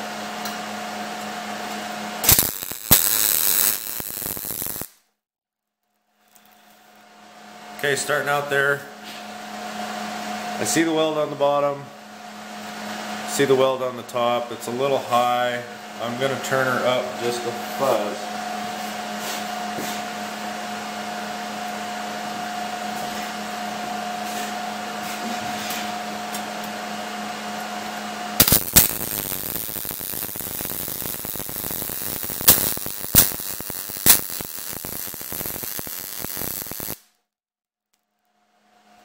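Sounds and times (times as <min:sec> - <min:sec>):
electrical hum: 0:00.0 - 0:04.9, 0:06.4 - 0:37.0
welding arc crackling and popping: 0:02.2 - 0:05.0, 0:28.4 - 0:37.1.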